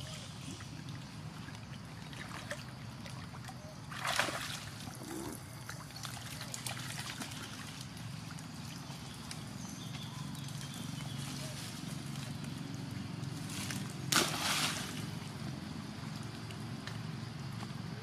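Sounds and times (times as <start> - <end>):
stream flowing and trickling: 0.0 - 16.2
water splash: 3.9 - 4.8, 14.1 - 15.1.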